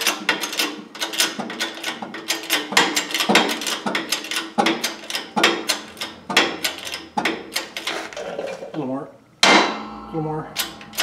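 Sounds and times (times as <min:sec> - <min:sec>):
sharp metal clicks and knocks: 0:00.0 - 0:08.0.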